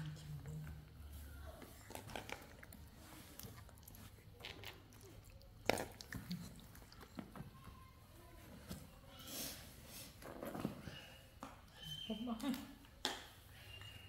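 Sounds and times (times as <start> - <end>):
monkey chewing crunches: 1.8 - 7.2.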